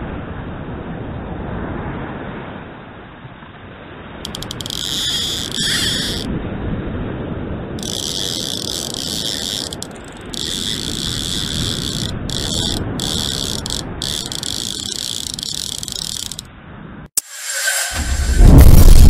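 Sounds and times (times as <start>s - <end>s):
fishing reel drag buzzing: 4.3s - 6.3s, 7.8s - 16.5s.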